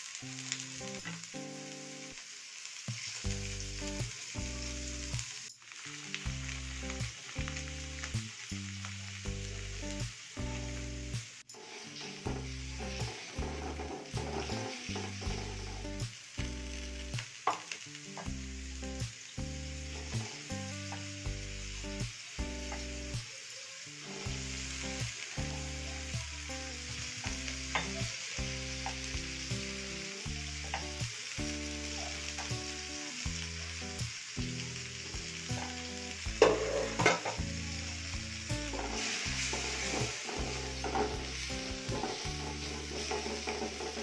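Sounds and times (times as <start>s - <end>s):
food sizzling in hot oil: 0.0s - 44.0s
soft background music: 3.3s - 23.3s, 24.0s - 44.0s
wooden spatula scraping wok: 11.5s - 16.0s, 36.4s - 37.4s, 38.7s - 44.0s.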